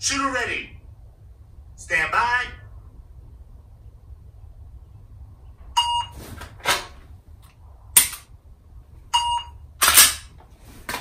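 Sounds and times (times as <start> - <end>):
timer app beep: 5.8 - 6.1, 9.1 - 9.6.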